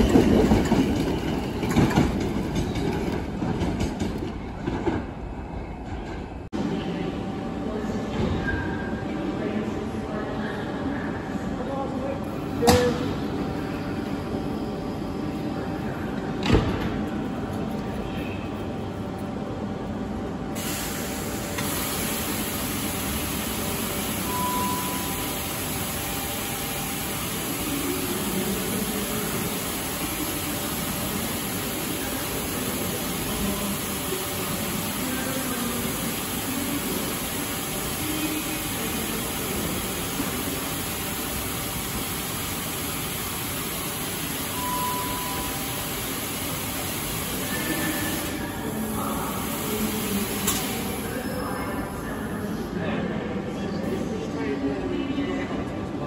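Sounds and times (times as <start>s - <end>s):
electric train hiss and hum: 12.2s - 52.3s
short high beep: 24.2s - 25.4s, 44.5s - 45.9s.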